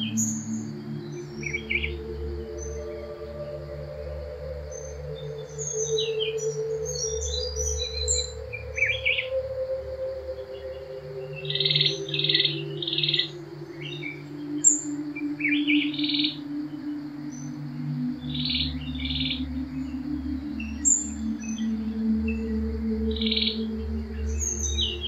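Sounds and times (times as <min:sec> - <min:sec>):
ambient music drone: 0:00.0 - 0:25.0
birds chirping: 0:00.0 - 0:25.0.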